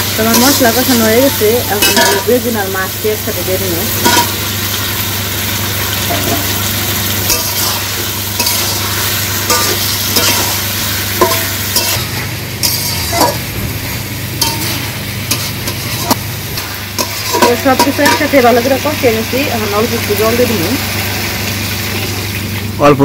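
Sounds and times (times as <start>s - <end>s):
fish sizzling in a pan: 0.0s - 22.8s
spatula scraping and knocking pan: 1.8s - 2.4s, 7.2s - 13.5s, 14.4s - 18.4s.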